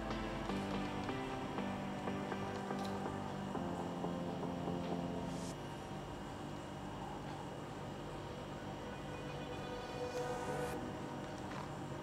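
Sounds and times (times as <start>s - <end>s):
soft background music with plucked notes: 0.0s - 5.6s.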